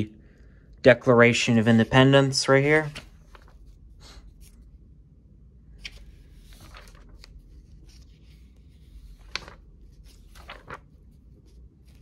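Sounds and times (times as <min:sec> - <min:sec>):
book pages turning: 0:02.6 - 0:04.7, 0:05.8 - 0:12.0.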